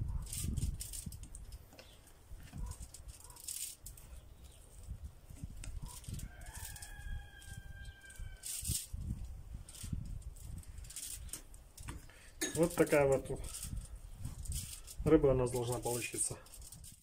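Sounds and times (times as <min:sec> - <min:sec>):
rustling of cling film: 0:00.1 - 0:12.0, 0:12.6 - 0:17.0
rooster crowing: 0:06.1 - 0:08.6.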